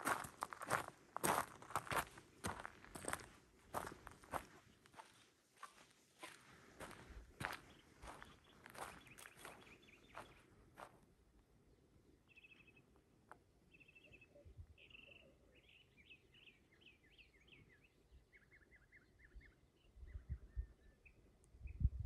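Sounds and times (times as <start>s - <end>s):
footsteps on trail: 0.0s - 11.0s
small songbird singing: 7.6s - 10.4s, 12.3s - 13.0s, 13.6s - 22.0s.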